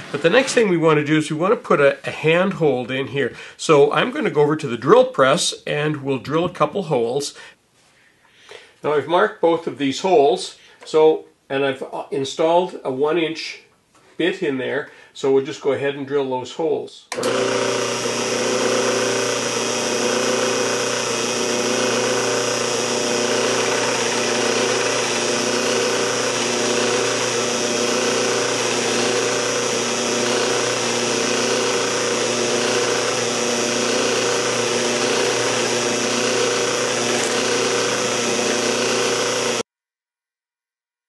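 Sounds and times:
drill press boring wood: 17.1 - 39.6.

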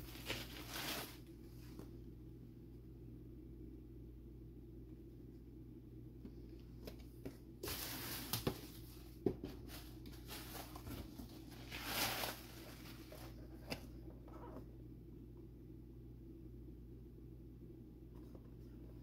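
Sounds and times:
cardboard and plastic packaging rustling: 0.0 - 1.9, 6.8 - 13.9.

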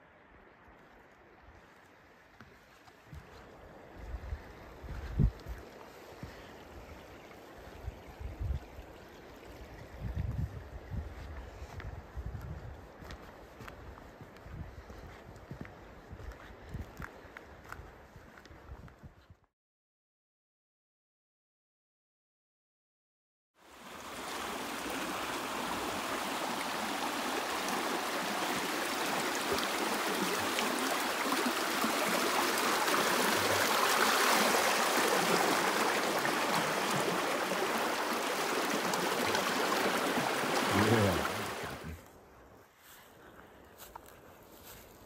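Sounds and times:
creek water rushing: 23.6 - 42.0.

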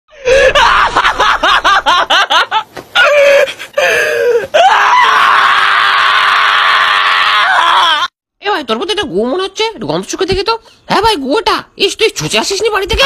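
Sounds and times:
person screaming: 0.1 - 1.1, 3.0 - 8.1.

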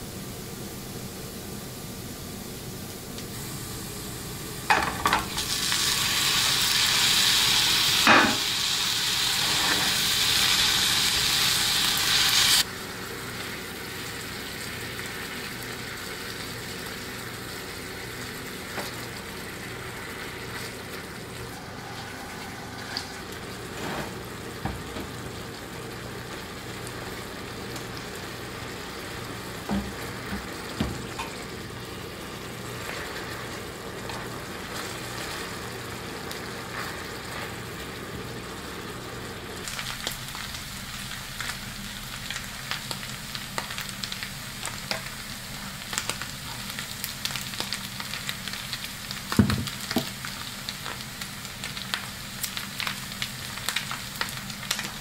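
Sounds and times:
meat sizzling in a frying pan: 3.0 - 55.0.

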